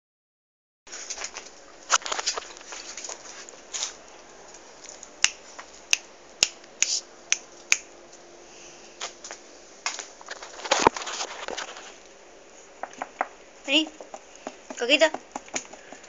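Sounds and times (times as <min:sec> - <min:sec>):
fingers snapping: 0:04.8 - 0:07.9.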